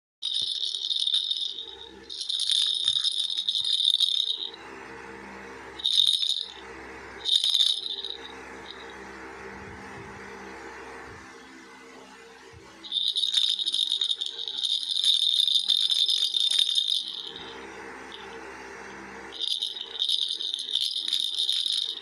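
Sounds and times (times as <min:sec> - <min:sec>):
ball toy rattling and jingling: 0:00.2 - 0:04.6, 0:05.8 - 0:09.0, 0:12.8 - 0:18.4, 0:19.3 - 0:22.0
low steady hum: 0:00.2 - 0:22.0.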